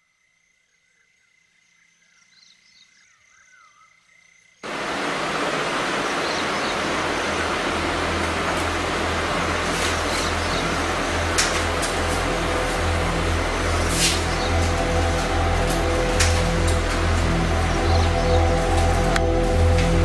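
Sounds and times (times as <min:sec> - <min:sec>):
loud steady rushing noise: 0:04.6 - 0:20.0
low hiss: 0:04.6 - 0:20.0.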